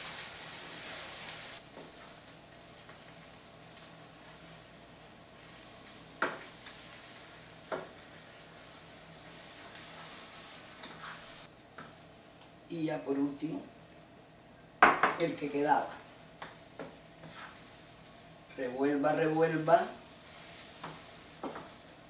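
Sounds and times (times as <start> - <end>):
eggs sizzling in a frying pan: 0.0 - 22.0
wooden spoon stirring: 15.9 - 17.6.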